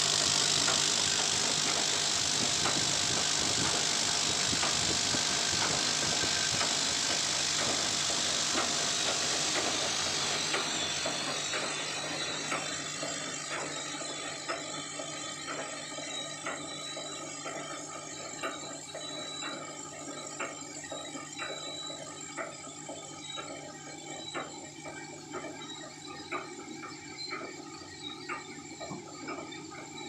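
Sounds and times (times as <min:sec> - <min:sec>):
steady low machine hum: 0:00.0 - 0:15.6.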